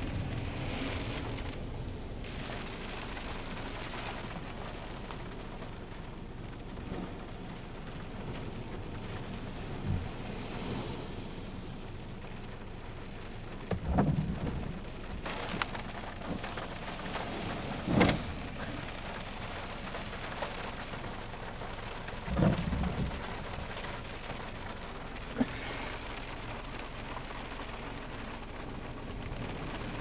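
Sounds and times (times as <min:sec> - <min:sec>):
rain pattering on car roof: 0:00.0 - 0:30.0
low rumbling surges: 0:09.7 - 0:12.2, 0:16.7 - 0:24.0.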